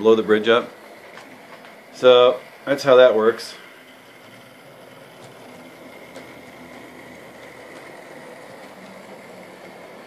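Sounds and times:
model train motor whirring: 0.0s - 10.0s.

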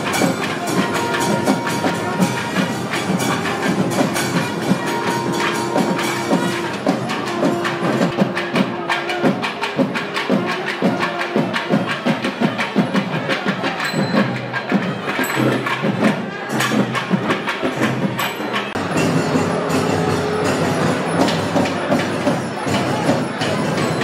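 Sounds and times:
held pipe note: 0.0s - 10.7s
fast procession drumming: 0.0s - 24.0s.

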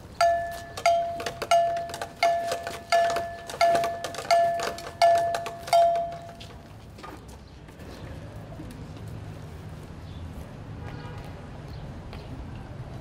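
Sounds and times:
bell ringing: 0.2s - 6.5s.

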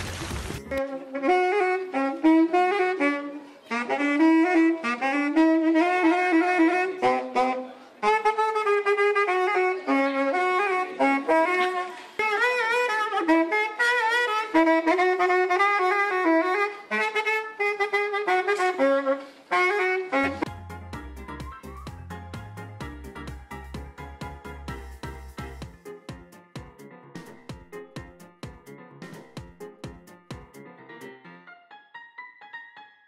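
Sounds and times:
woodwind playing slow melody: 0.6s - 20.6s.

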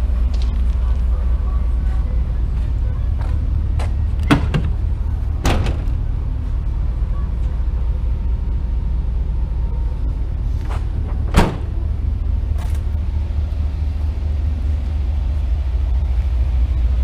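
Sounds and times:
steady low rumble: 0.0s - 17.0s
tailgate slammed shut: 4.2s - 6.1s, 10.7s - 12.0s.

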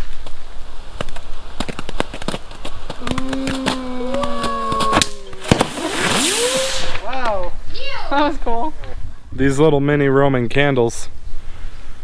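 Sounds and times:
firework crackling pops: 3.0s - 7.6s
firework steady whine: 4.6s - 7.3s.

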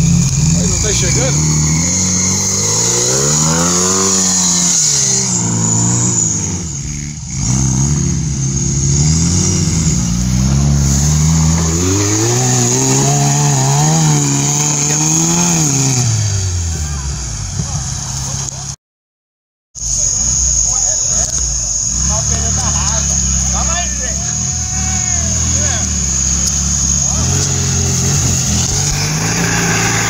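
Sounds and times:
buggy engine revving: 0.0s - 18.8s, 19.8s - 30.0s.

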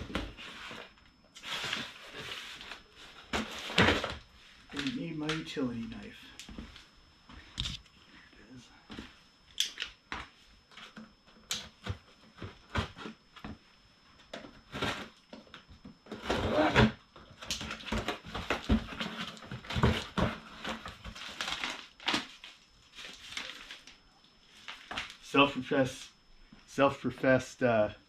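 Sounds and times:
cardboard packaging rustling: 0.0s - 5.1s, 16.1s - 25.2s.

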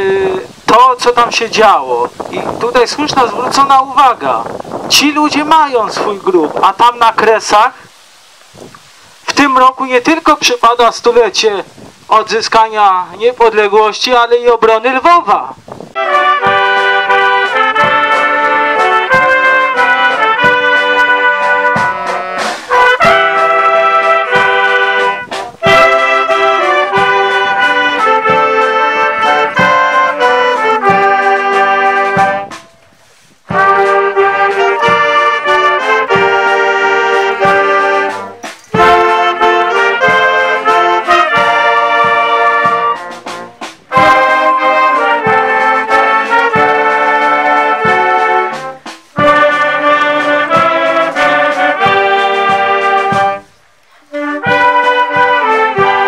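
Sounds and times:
brass band playing slow tune: 2.0s - 2.6s, 15.7s - 56.0s.

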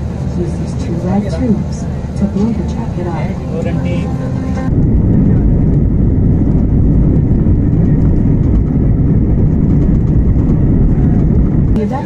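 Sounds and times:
airliner cabin rumble: 0.0s - 12.0s.

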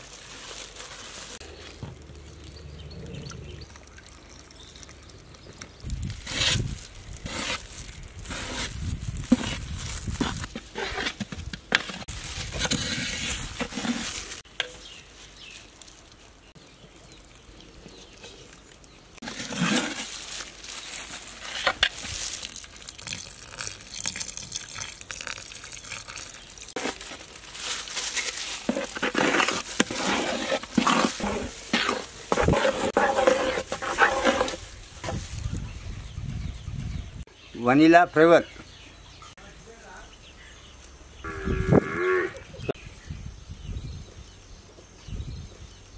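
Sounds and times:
milk pouring: 1.6s - 5.9s, 22.3s - 26.8s
metal spoon scraping pot: 28.6s - 34.6s.

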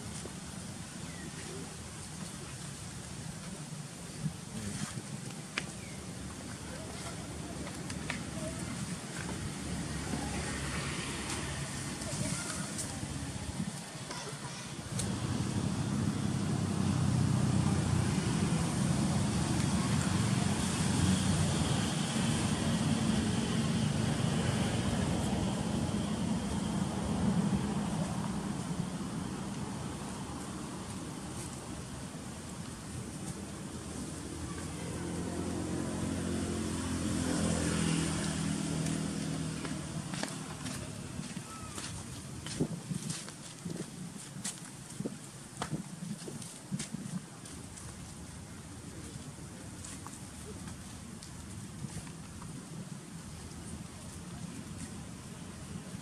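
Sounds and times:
low engine rumble: 0.0s - 44.2s.

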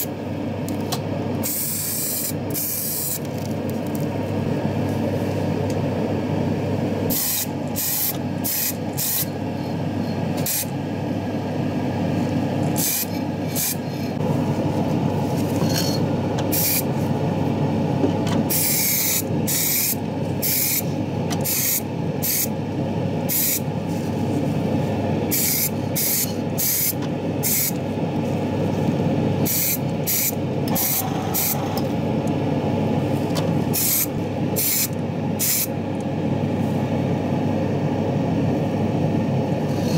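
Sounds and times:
low machine hum: 0.0s - 39.9s
paint sprayer hissing: 16.5s - 16.8s, 25.3s - 27.8s, 29.4s - 31.6s.

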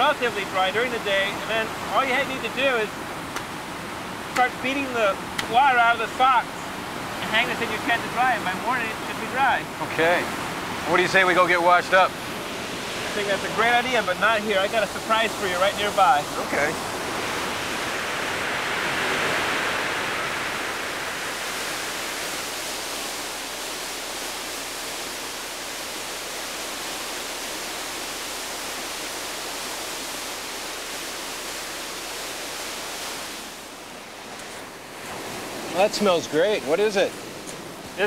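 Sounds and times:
rushing water: 0.0s - 38.0s.

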